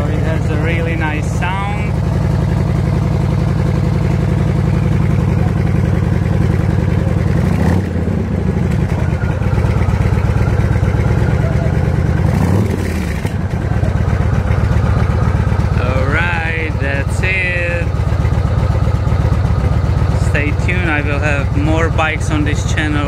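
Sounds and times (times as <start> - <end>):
motorcycle throttle blips: 0.0 - 16.0
motorcycle engine idling: 0.0 - 23.0.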